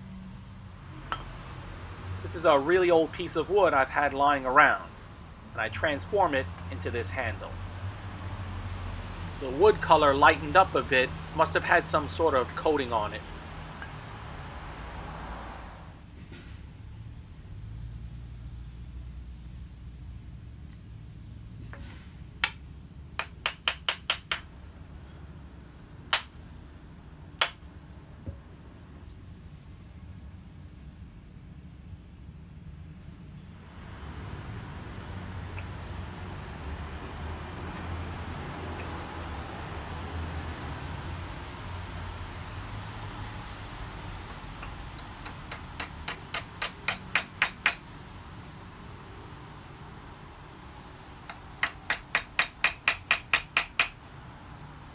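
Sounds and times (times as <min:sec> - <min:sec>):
hammer tapping metal: 0:01.0 - 0:01.4, 0:23.2 - 0:24.5, 0:27.4 - 0:27.6, 0:44.3 - 0:47.8, 0:51.3 - 0:54.0
light hammer taps: 0:51.3 - 0:54.0.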